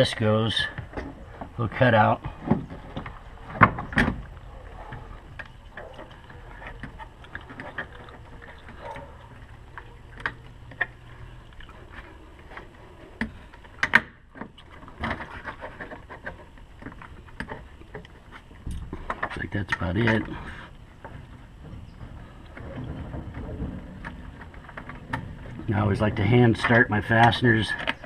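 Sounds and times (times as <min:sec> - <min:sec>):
plastic tank knocking and scraping: 0:21.6 - 0:26.3.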